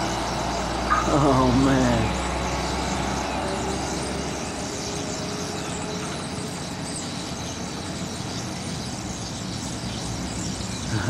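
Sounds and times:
highway traffic noise: 0.0s - 11.0s
large flock of birds calling: 0.0s - 11.0s.

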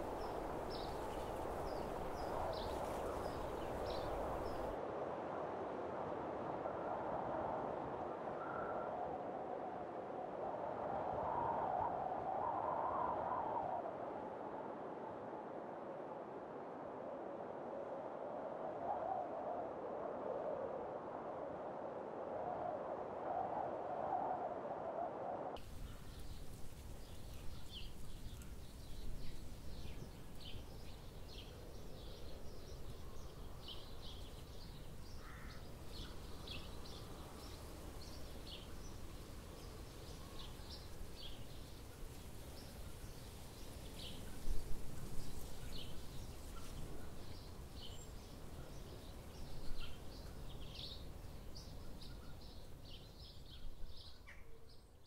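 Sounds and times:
small birds chirping: 0.0s - 4.7s, 25.6s - 55.0s.

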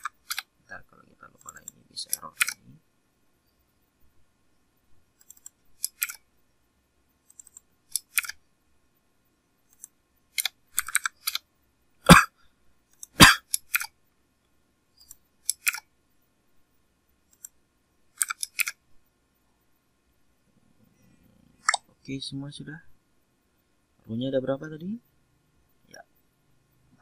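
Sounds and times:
computer keyboard typing: 0.0s - 0.6s, 1.3s - 2.8s, 5.2s - 6.3s, 7.2s - 8.4s, 9.7s - 11.5s, 15.0s - 15.9s, 17.2s - 18.8s.

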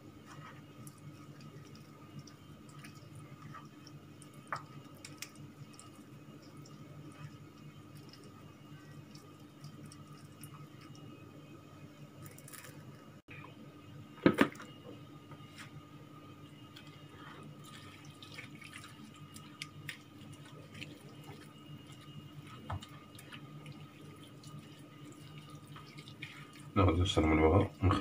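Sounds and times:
steady low hum: 0.0s - 28.0s
hands squelching in wet marinade: 17.6s - 26.8s.

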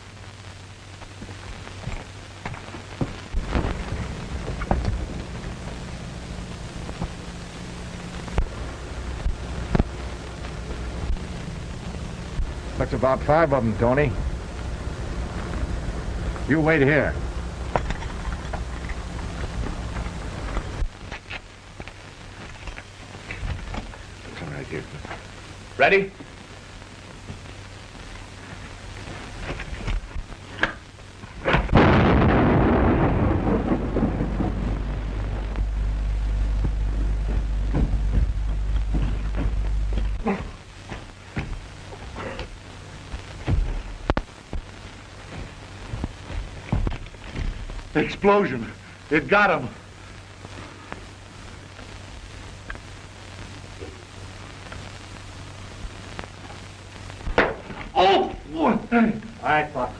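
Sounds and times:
film soundtrack hiss and hum: 0.0s - 59.9s
explosion rumbling in a cave: 31.4s - 35.8s
sharp cracks: 54.4s - 58.4s.

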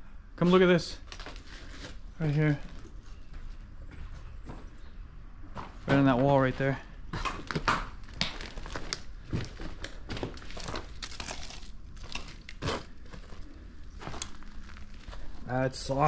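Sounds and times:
brittle debris crinkling and crunching: 7.4s - 16.0s.

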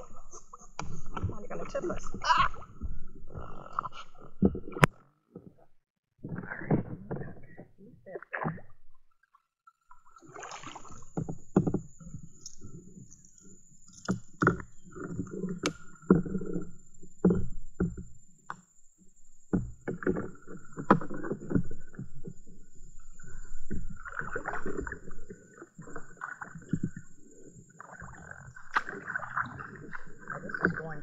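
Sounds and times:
paddle pulling through water: 0.0s - 9.0s, 9.7s - 31.0s
water splashes and drips: 9.9s - 16.3s, 23.0s - 27.1s, 27.7s - 31.0s
paddle knocks: 10.5s - 18.6s.

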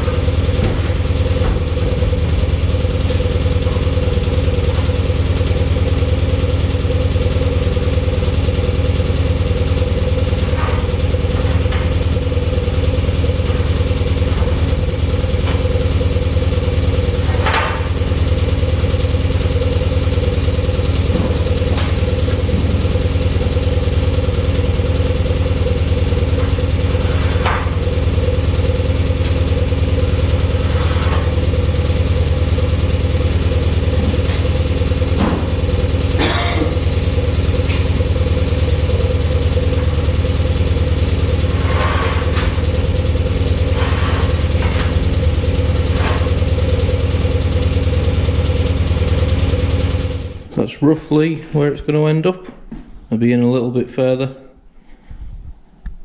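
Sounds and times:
engine idling: 0.0s - 52.1s.

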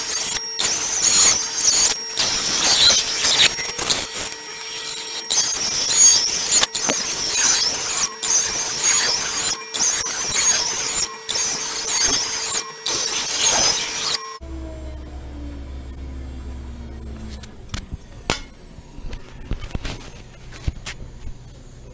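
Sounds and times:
router spindle whining: 0.0s - 21.9s.

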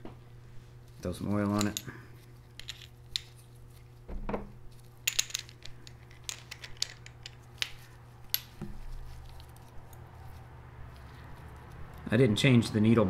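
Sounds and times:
metal parts clicking and clinking: 1.4s - 2.0s, 2.6s - 3.4s, 4.8s - 10.0s.

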